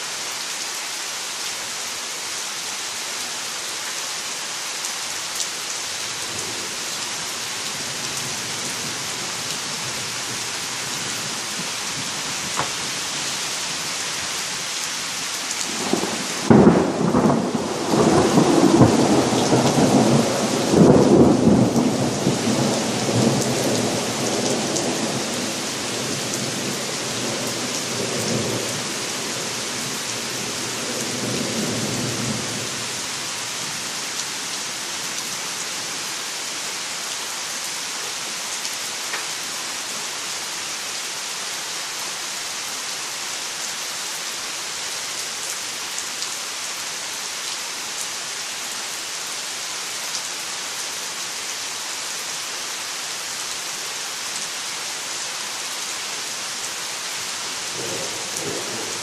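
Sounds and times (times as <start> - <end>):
steady rain: 0.0 - 59.0.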